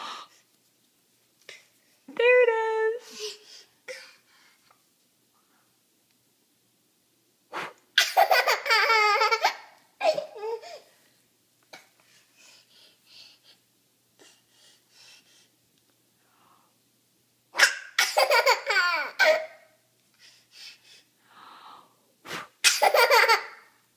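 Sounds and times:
toddler laughing: 8.0 - 10.9, 18.0 - 19.6, 22.8 - 23.7.

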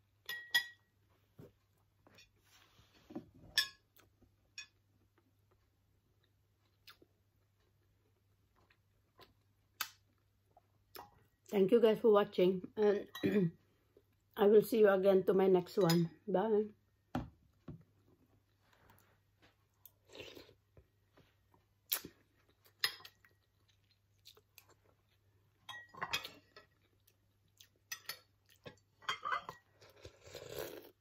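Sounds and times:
soft chewing: 3.9 - 11.5, 17.8 - 31.0.

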